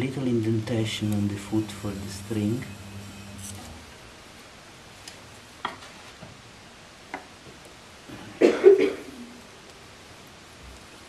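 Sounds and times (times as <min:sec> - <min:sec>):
person coughing: 0:08.1 - 0:09.2.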